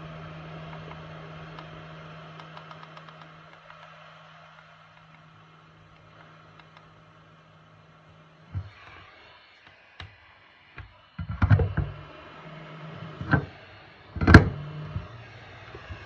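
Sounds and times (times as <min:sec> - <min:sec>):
low steady hum: 0:00.0 - 0:16.0
plastic knocks and clunks: 0:11.2 - 0:12.0, 0:14.2 - 0:15.1.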